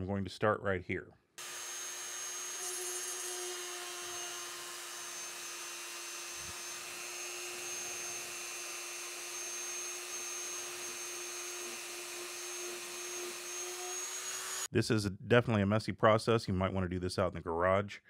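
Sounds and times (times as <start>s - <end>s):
rotary tool motor whine: 1.4s - 14.7s.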